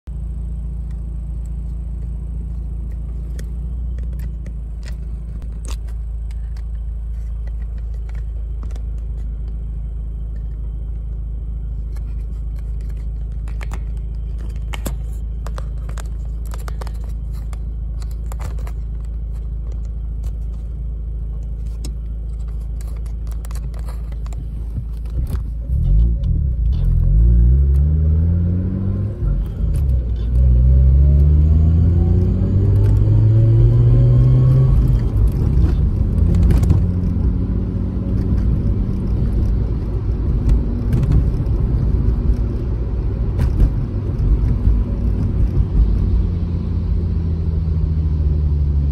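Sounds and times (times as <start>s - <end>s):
car engine idling: 0.1s - 27.1s
engine revving under acceleration: 25.6s - 48.9s.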